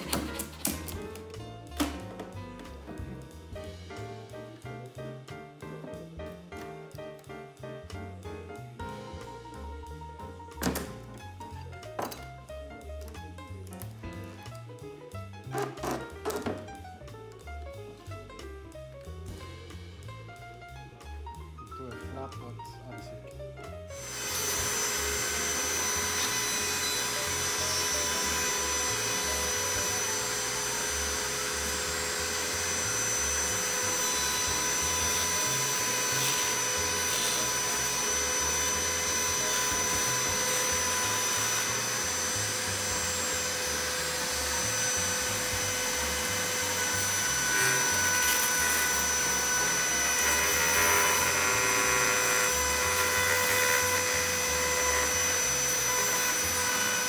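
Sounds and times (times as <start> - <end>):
rotary tool whining: 24.0 - 57.0.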